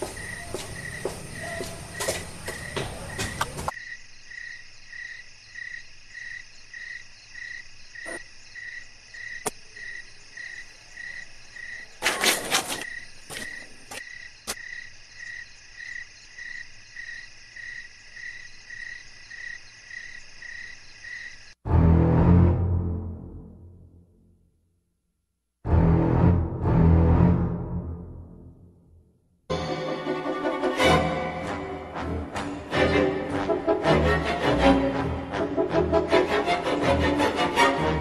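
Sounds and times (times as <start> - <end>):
crickets chirping: 0.0 - 21.6.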